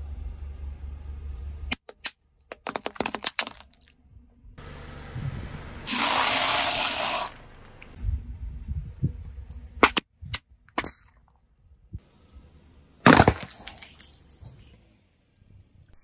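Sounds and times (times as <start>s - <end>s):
low tyre rumble: 4.0s - 9.8s.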